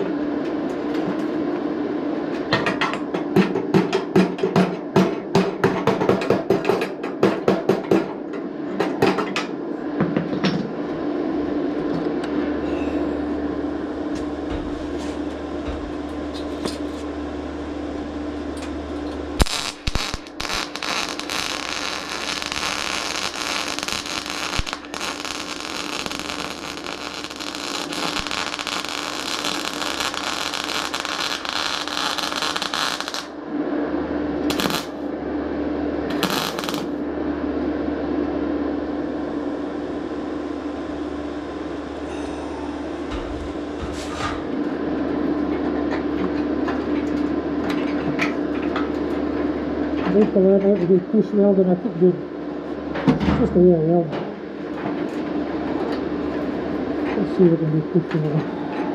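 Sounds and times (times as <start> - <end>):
steady hum: 0.0 - 58.9
welder arc crackling: 18.0 - 33.4, 34.5 - 35.0, 36.1 - 37.0.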